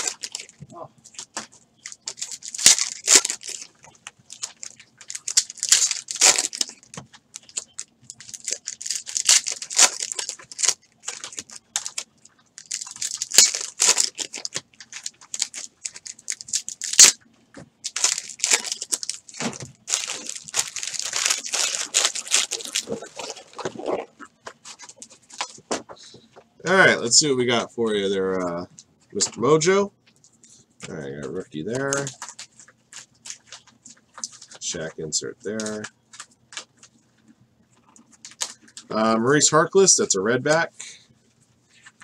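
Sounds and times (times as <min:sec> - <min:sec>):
foil packs tearing: 0:00.0 - 0:00.6, 0:01.2 - 0:17.2, 0:17.8 - 0:24.1
wrappers crinkling: 0:00.0 - 0:25.7, 0:31.2 - 0:34.9, 0:35.5 - 0:39.0.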